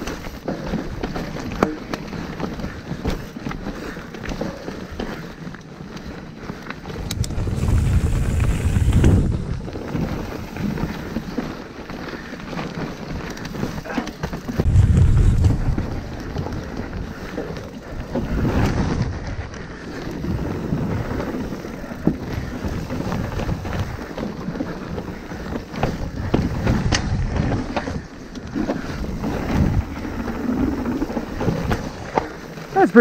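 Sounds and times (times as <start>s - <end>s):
bike knocks and rattles: 0.0s - 5.4s, 12.5s - 19.5s, 20.2s - 32.4s
bike tyres on trail: 0.0s - 33.0s
wind rumbling on microphone: 6.8s - 11.4s, 14.4s - 32.8s.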